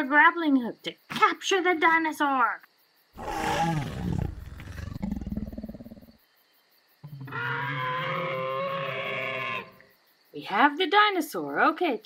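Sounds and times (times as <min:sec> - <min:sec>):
drawn-out cry: 0:03.2 - 0:05.9, 0:07.3 - 0:09.8
dinosaur roar: 0:03.2 - 0:06.2, 0:07.2 - 0:09.8.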